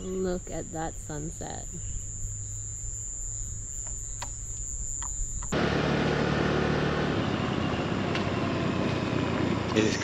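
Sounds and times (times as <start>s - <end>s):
faint chirps: 0.0s - 5.6s.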